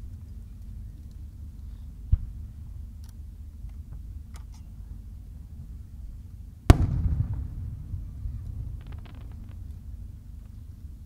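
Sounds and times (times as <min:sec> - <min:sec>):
low outdoor rumble: 0:00.0 - 0:11.0
distant firework launch thump: 0:06.7 - 0:10.6.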